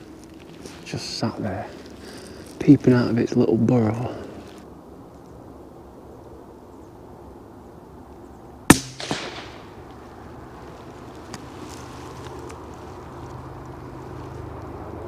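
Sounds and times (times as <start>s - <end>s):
faint steady hiss: 0.0s - 15.0s
rifle shot crack: 8.7s - 10.2s
weaker echo crack: 8.7s - 10.2s.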